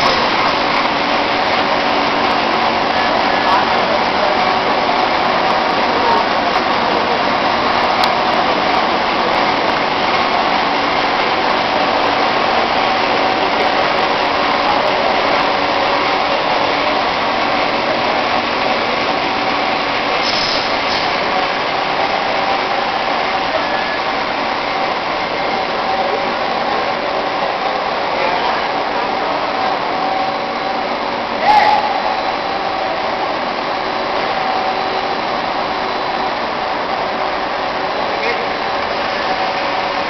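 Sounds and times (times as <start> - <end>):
extrusion machinery hiss: 20.1 - 21.3
brief higher hiss: 20.2 - 21.2.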